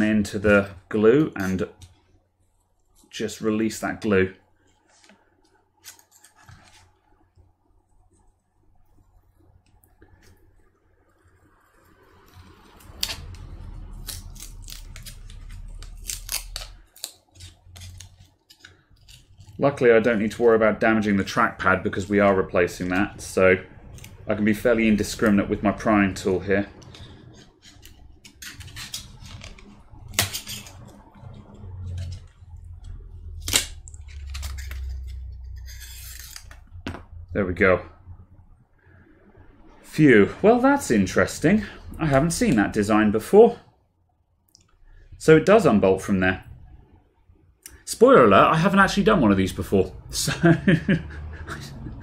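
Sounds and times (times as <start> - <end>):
low rumble of handling: 19.0 - 38.7.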